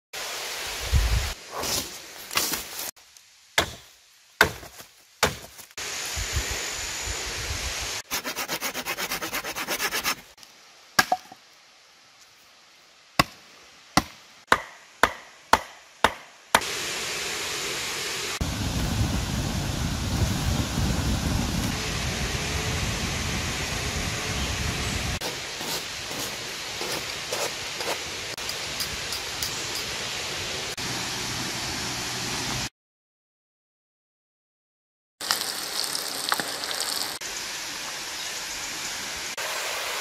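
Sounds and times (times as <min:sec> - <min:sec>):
wood being chopped: 0:03.6 - 0:05.7, 0:11.0 - 0:11.4, 0:13.2 - 0:13.4, 0:14.0 - 0:16.7.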